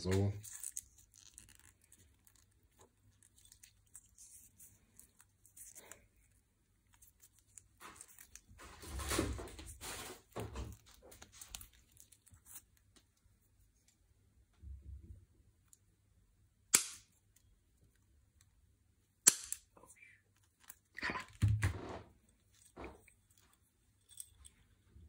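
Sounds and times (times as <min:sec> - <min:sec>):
rustling and scraping: 0:00.0 - 0:14.0, 0:20.4 - 0:25.0.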